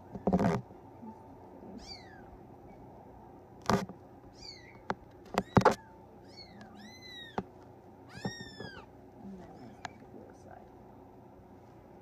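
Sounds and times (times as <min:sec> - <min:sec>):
kitten mewing: 0:00.0 - 0:02.8, 0:05.4 - 0:07.4.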